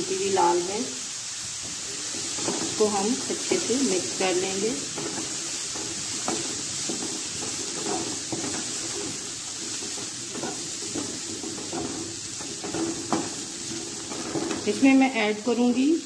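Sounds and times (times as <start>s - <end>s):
frying sizzle: 0.0s - 16.0s
spatula tapping a pan: 1.6s - 3.6s, 4.8s - 14.8s
spatula scraping a pan: 1.6s - 15.0s.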